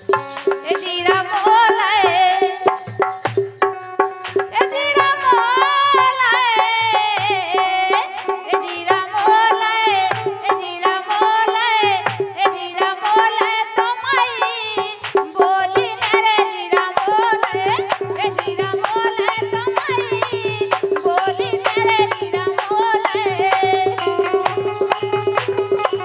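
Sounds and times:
fast drum and percussion strokes: 0.0s - 26.0s
woman singing: 0.3s - 3.2s, 4.3s - 26.0s
harmonium: 14.8s - 26.0s.

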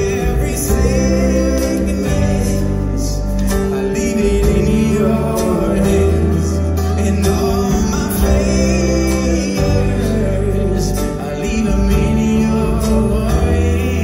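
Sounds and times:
live band playing slow song: 0.0s - 14.0s
man singing: 0.0s - 14.0s.

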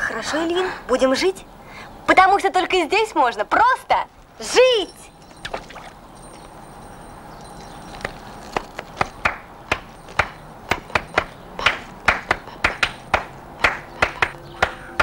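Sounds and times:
hands clapping: 9.0s - 14.9s.

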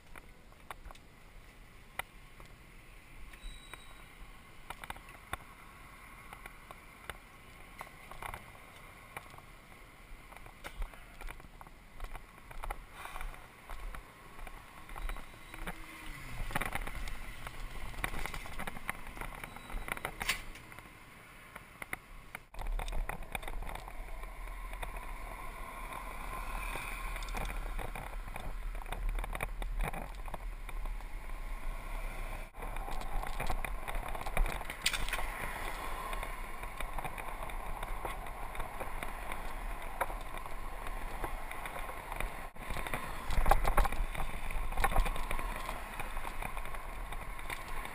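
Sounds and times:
wind rumble and hiss: 4.1s - 47.9s
bike rattling and knocking: 10.4s - 20.7s, 22.4s - 25.3s, 32.5s - 47.9s.

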